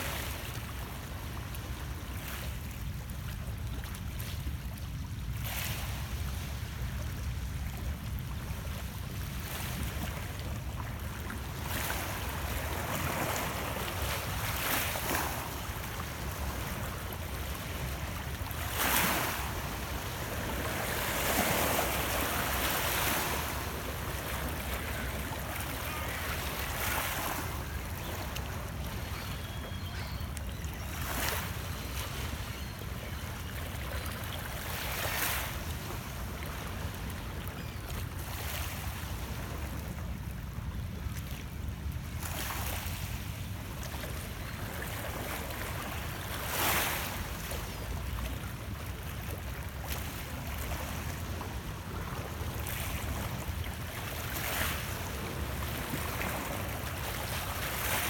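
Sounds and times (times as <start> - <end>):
waves lapping on rocks: 8.9 - 32.8, 48.0 - 58.0.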